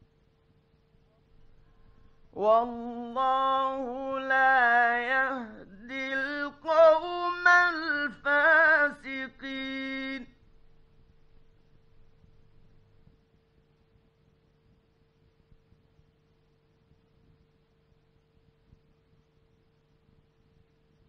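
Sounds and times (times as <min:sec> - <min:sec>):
faint steady hum: 0:00.0 - 0:21.0
man chanting melodically: 0:02.3 - 0:10.3.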